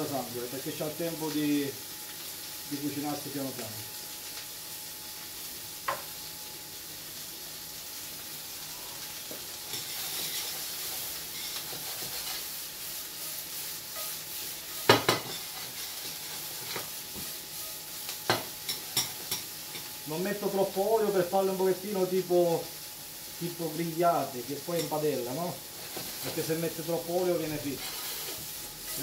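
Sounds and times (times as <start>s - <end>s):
mushrooms sizzling in oil: 0.0s - 29.0s
metal tongs scraping a pan: 9.7s - 17.8s, 27.3s - 29.0s.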